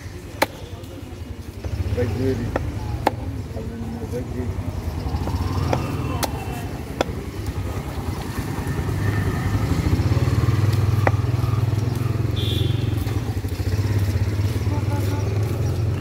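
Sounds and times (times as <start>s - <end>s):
vehicle engine running: 0.0s - 16.0s
knife chopping on wooden board: 2.4s - 3.3s, 6.9s - 7.2s, 10.9s - 11.3s.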